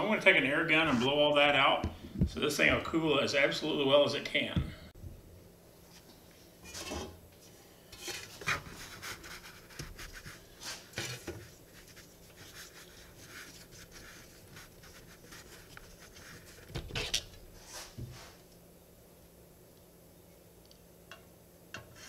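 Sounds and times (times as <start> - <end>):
metal pan scraping on workbench: 6.6 - 7.2.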